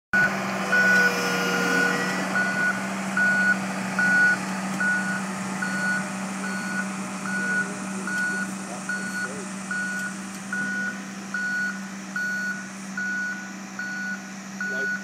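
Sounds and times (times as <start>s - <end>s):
diesel engine drone: 0.1s - 15.0s
vehicle warning alarm beeps: 0.2s - 15.0s.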